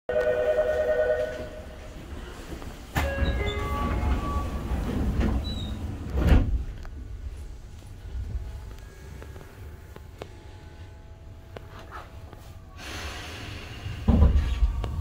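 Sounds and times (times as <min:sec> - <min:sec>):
train door chime: 0:00.1 - 0:01.8, 0:02.9 - 0:05.8
low rumble inside train car: 0:00.1 - 0:15.0
sliding doors closing clunk: 0:02.9 - 0:06.8.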